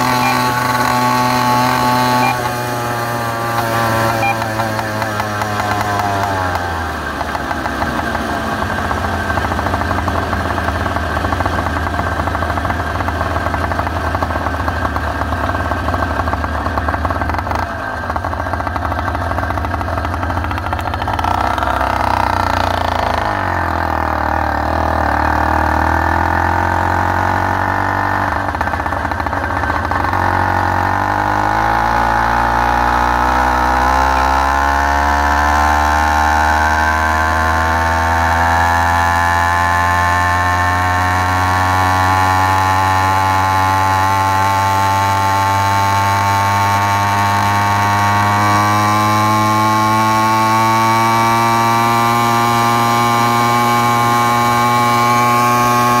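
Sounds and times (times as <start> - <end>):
two-stroke bicycle engine running: 0.0 - 56.0.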